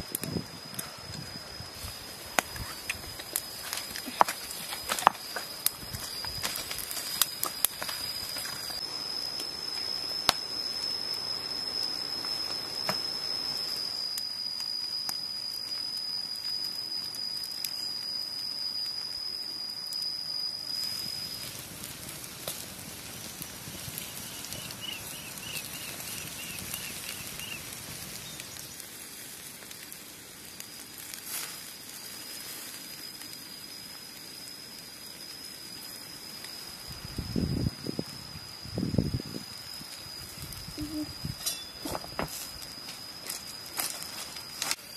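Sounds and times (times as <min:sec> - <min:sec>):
high-pitched whine: 0:00.0 - 0:28.9, 0:30.3 - 0:44.9
fire crackling and popping: 0:00.0 - 0:44.9
meat sizzling on grill: 0:20.3 - 0:44.9.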